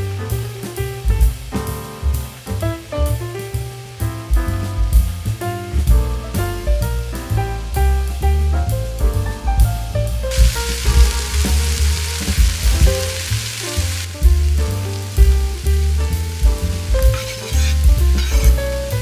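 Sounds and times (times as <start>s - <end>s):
background music with bass and piano: 0.0s - 19.0s
food sizzling in a frying pan: 10.3s - 19.0s.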